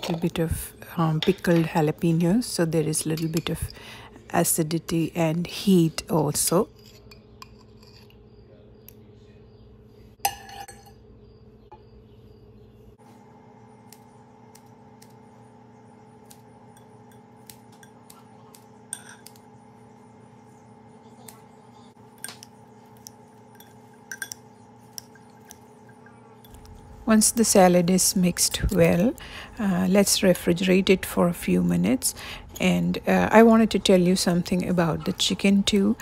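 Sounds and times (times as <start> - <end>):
faint steady hum: 0.0 - 36.0
utensils clinking against glass bowl: 2.8 - 3.8, 10.2 - 11.0, 18.8 - 19.4, 22.1 - 26.6.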